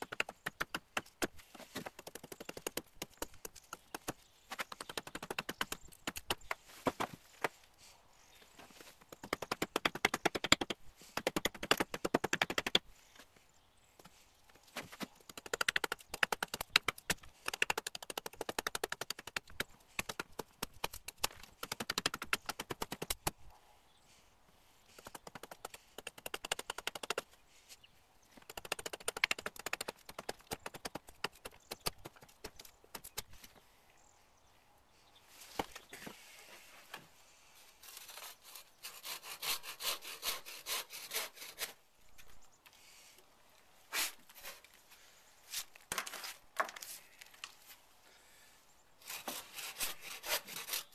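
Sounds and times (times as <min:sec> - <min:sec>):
hatchet chopping wood: 0:00.0 - 0:07.1, 0:09.2 - 0:12.8, 0:15.1 - 0:23.4.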